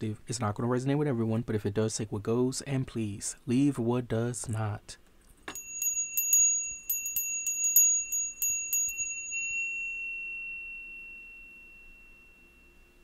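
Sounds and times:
small bell ringing: 0:05.5 - 0:13.0.

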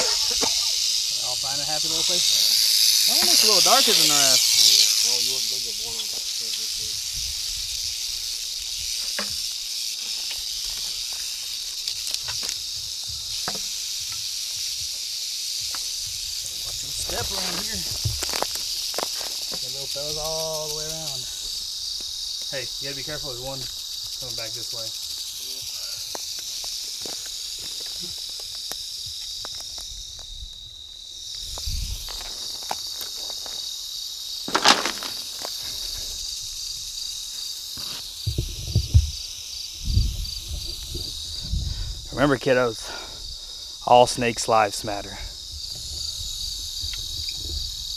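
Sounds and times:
crickets trilling: 0:00.0 - 0:47.9
rattlesnakes rattling: 0:00.0 - 0:47.9
footsteps through dry grass: 0:34.5 - 0:35.8.

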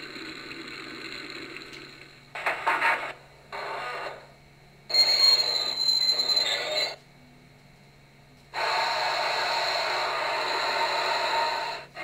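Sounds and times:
high ringing tone: 0:04.9 - 0:07.0
noisy locomotive sound effect: 0:08.5 - 0:12.0.

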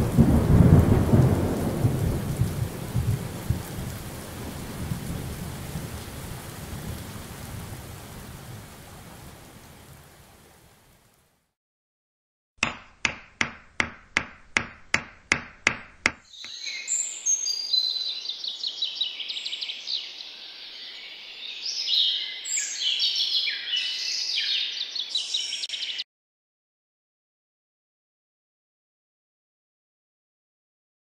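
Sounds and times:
sharp knocks: 0:12.6 - 0:16.3
birds chirping and singing: 0:16.3 - 0:26.0.

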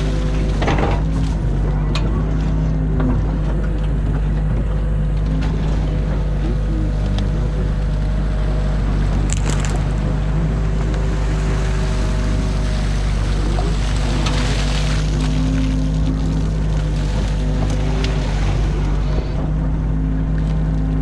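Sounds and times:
diesel engine humming: 0:00.0 - 0:21.0
hydraulics working: 0:00.0 - 0:21.0.

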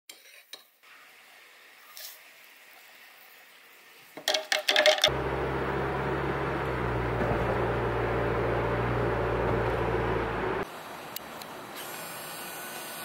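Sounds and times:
plastic cup clicking and clattering: 0:04.2 - 0:05.1
car cabin road noise: 0:05.1 - 0:10.7.

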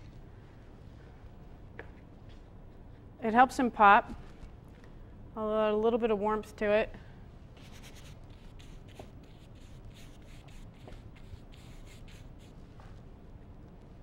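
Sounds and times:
paintbrush scratching on canvas: 0:07.6 - 0:12.6.

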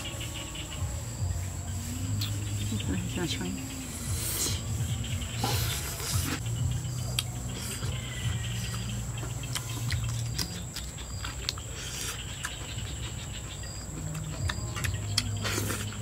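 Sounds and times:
high insect drone: 0:00.0 - 0:16.0
person chewing and lip-smacking: 0:07.1 - 0:07.9, 0:08.6 - 0:13.0, 0:13.7 - 0:16.0.

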